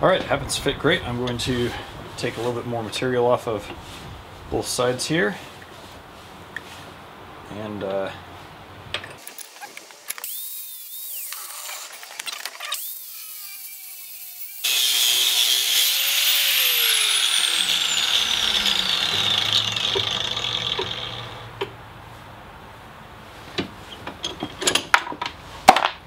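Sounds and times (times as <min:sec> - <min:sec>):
angle grinder grinding metal: 0:09.2 - 0:21.7.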